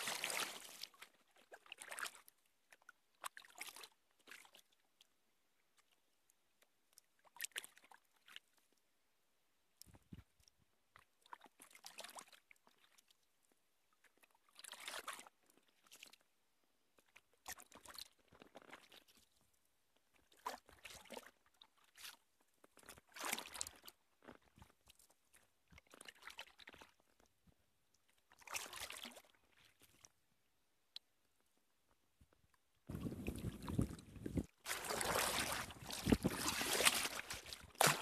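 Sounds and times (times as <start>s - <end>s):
paddle splashing through water: 0.0s - 2.2s, 28.4s - 30.0s, 32.9s - 38.0s.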